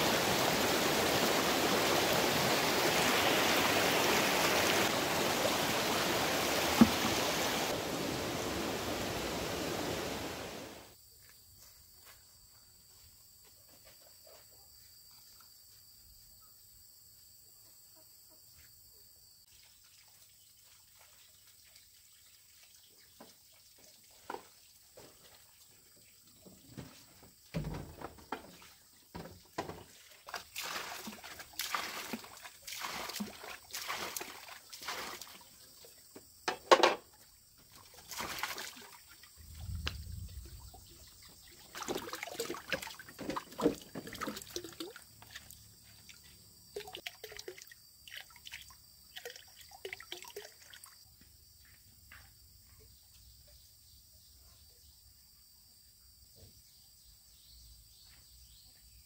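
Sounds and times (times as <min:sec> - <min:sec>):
water sloshing and pouring: 0:00.0 - 0:10.6, 0:19.5 - 0:27.0, 0:27.8 - 0:36.0, 0:37.6 - 0:51.0
knocks and rustles: 0:26.4 - 0:30.0.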